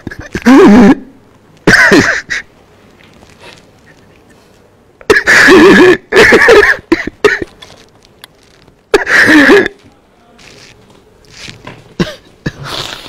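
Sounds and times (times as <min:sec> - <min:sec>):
man sobbing loudly: 0:00.0 - 0:01.1.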